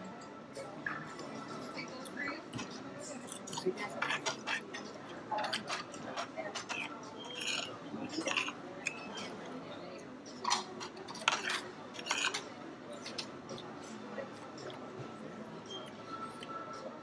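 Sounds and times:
cutlery clicking against a plate: 0:03.3 - 0:09.4, 0:10.4 - 0:13.7.

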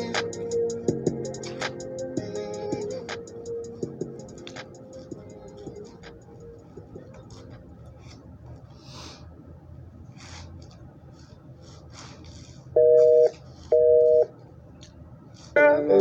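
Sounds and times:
light ticks and scuffs: 0:04.2 - 0:08.8, 0:10.1 - 0:13.8.

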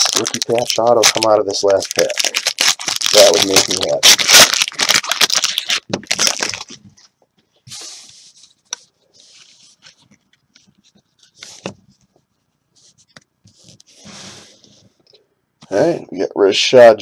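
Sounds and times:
wrapper tearing and crinkling: 0:00.0 - 0:06.8.

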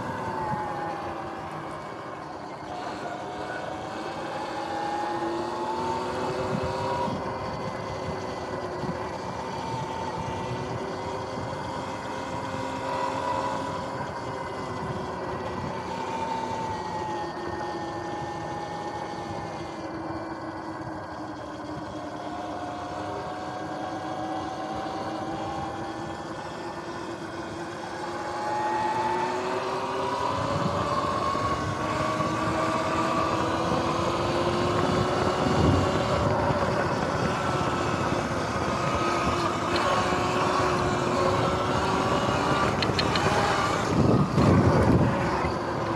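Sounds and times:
electric motorbike motor whining: 0:00.0 - 0:45.9
wind noise: 0:05.8 - 0:20.2, 0:30.1 - 0:45.9.

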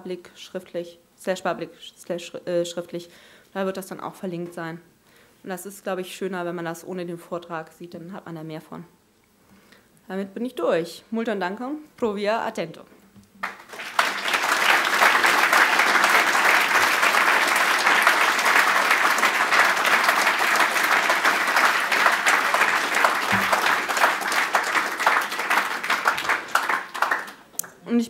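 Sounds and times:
audience applauding: 0:13.4 - 0:27.5.

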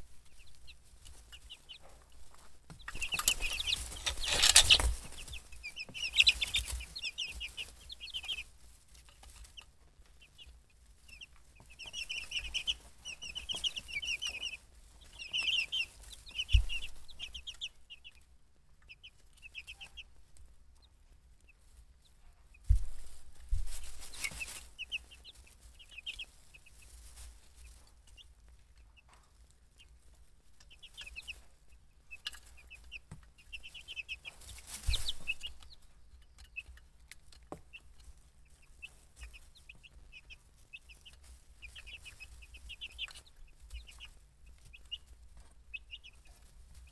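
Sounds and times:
chicks peeping: 0:00.0 - 0:46.9
rustling: 0:00.0 - 0:46.9
soft thump: 0:22.7 - 0:23.9.

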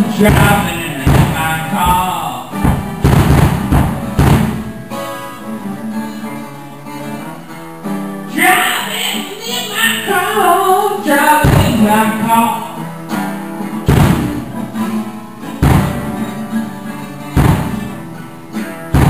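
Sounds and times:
man singing: 0:00.0 - 0:02.7, 0:08.3 - 0:13.0
acoustic guitar strumming: 0:00.0 - 0:19.0
drum kit hits: 0:00.1 - 0:05.1, 0:11.4 - 0:12.1, 0:13.9 - 0:14.6, 0:15.6 - 0:16.4, 0:17.4 - 0:18.1.

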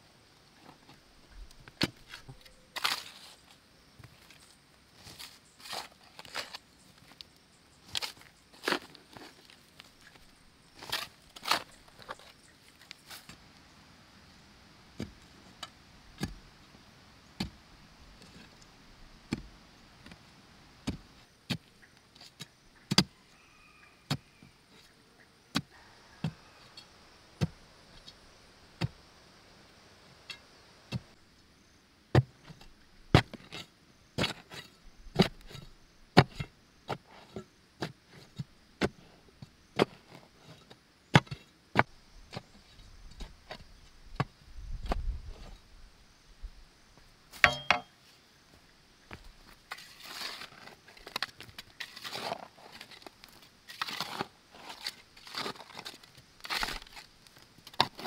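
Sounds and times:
hoe chopping into earth: 0:22.9 - 0:23.1, 0:32.1 - 0:33.5.

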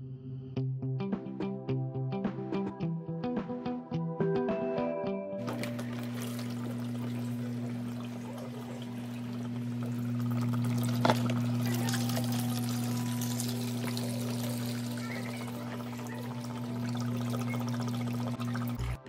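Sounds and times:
low motor hum: 0:05.4 - 0:19.0
water trickling and splashing: 0:05.4 - 0:19.0.

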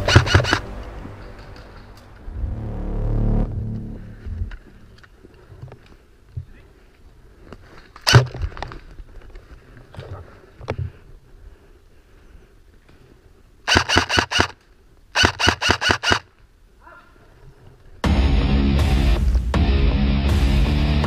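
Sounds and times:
airsoft rifle shots: 0:00.0 - 0:00.6, 0:08.0 - 0:08.3, 0:13.7 - 0:14.6, 0:15.2 - 0:16.3
loud heavy rock music: 0:18.0 - 0:21.0.

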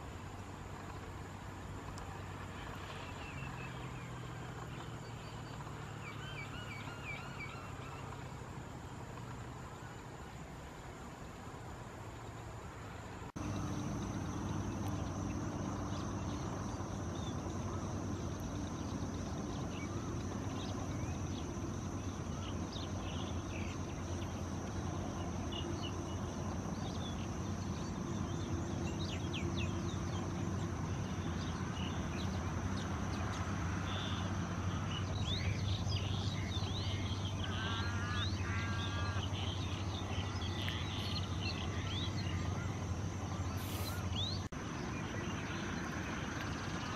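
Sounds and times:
low motor-like hum: 0:00.0 - 0:46.9
small birds chirping: 0:13.4 - 0:46.9.

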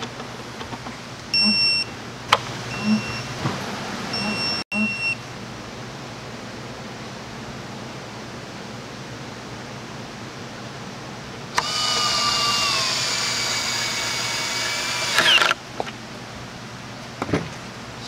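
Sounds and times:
cordless drill whining: 0:11.6 - 0:15.6.

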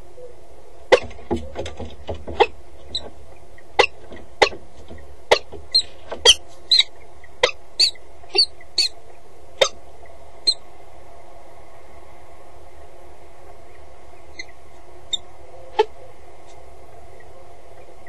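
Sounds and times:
clicks and knocks on metal grating: 0:00.9 - 0:03.2, 0:03.8 - 0:06.4
high squeaky bird notes: 0:03.8 - 0:04.6, 0:05.3 - 0:09.0, 0:09.6 - 0:09.8, 0:10.4 - 0:10.6, 0:14.3 - 0:15.2.

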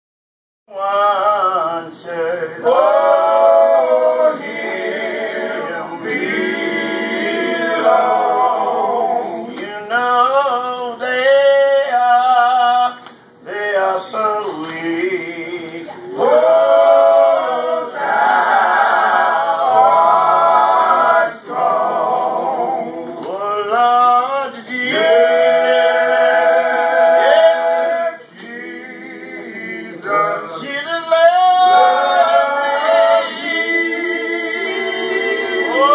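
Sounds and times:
men singing in harmony: 0:13.5 - 0:35.9.

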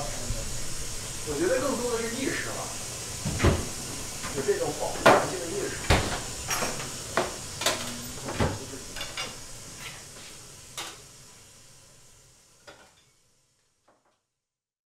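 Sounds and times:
dishes knocking on wooden table: 0:03.2 - 0:03.7, 0:05.9 - 0:09.4.

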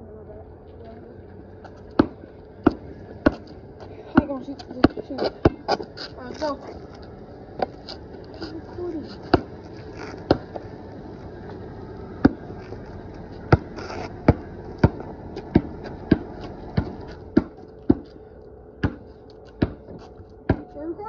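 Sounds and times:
basketball bouncing on concrete: 0:02.0 - 0:05.9, 0:09.2 - 0:09.6, 0:10.2 - 0:10.7, 0:12.2 - 0:12.8, 0:13.4 - 0:18.1, 0:18.8 - 0:20.8.

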